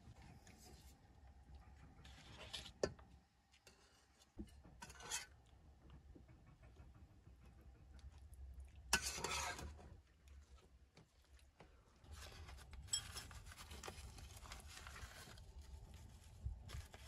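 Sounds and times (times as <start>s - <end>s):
cookware scrapes and rubs: 3.6s - 5.4s, 8.9s - 9.9s.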